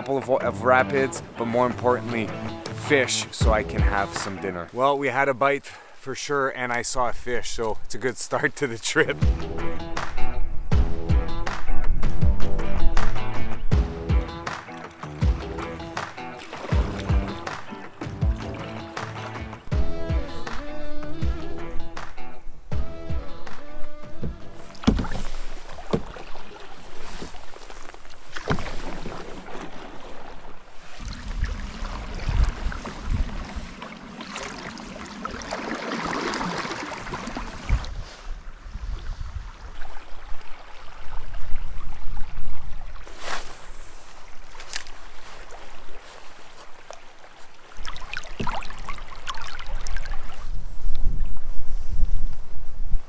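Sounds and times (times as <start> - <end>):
paddle splashes: 14.4 - 19.8, 23.5 - 51.9
running water: 14.4 - 19.8, 23.7 - 38.0, 39.7 - 51.6
sharp knocks: 24.1 - 25.3
water trickling and running: 44.3 - 51.4.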